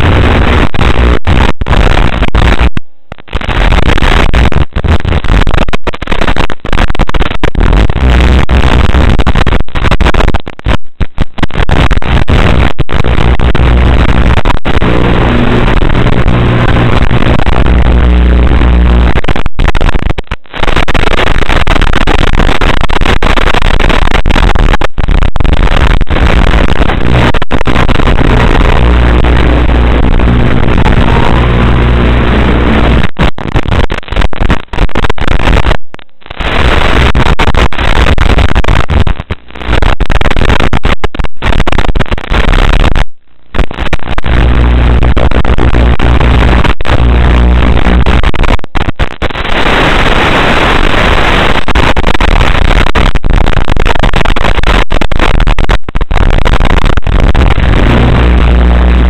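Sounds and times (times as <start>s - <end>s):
harsh buzzing static: 0.0s - 59.0s
steady low hum: 26.9s - 33.1s.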